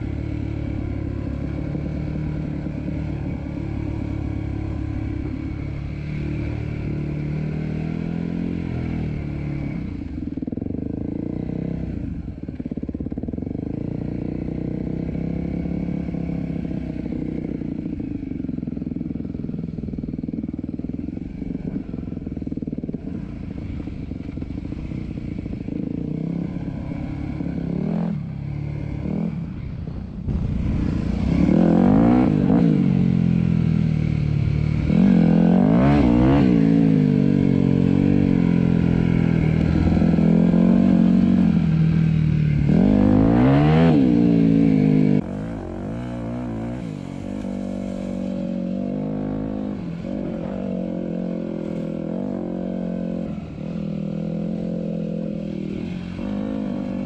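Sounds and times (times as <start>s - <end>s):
dirt bike engine revving: 24.3s - 57.0s.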